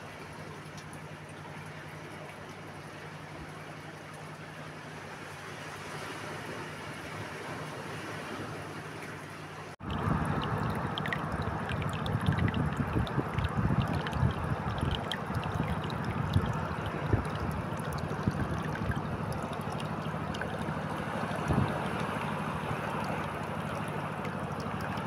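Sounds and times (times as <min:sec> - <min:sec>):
seawater trickling over rocks: 0:00.0 - 0:25.0
wind rumbling on microphone: 0:09.8 - 0:22.7.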